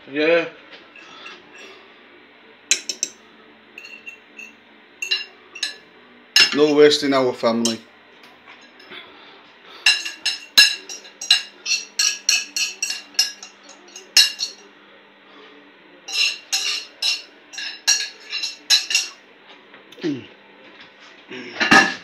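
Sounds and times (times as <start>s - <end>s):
cutlery scraping china plates: 1.0s - 1.7s, 2.7s - 3.2s, 3.8s - 5.8s, 6.4s - 6.9s, 7.6s - 7.8s, 9.8s - 14.6s, 16.1s - 19.2s.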